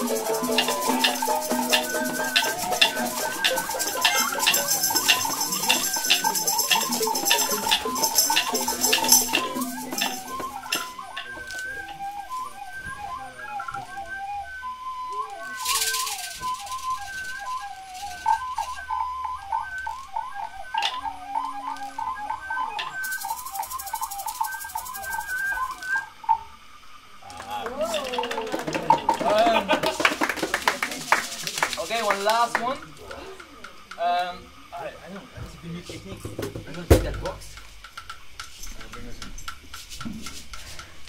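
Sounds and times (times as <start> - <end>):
noisy rattling bursts: 0.0 - 11.3
ringing high shimmer: 0.0 - 11.9
rattles and shakers clicking: 0.0 - 12.0, 15.5 - 19.0, 22.8 - 26.0, 27.3 - 34.1, 35.8 - 41.0
falling chirping whistles: 0.0 - 28.3
held pitched tones: 0.0 - 29.7.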